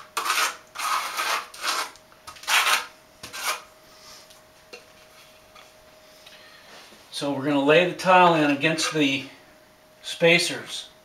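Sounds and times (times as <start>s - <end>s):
trowel scraping tile: 0.0s - 3.7s, 8.7s - 9.0s.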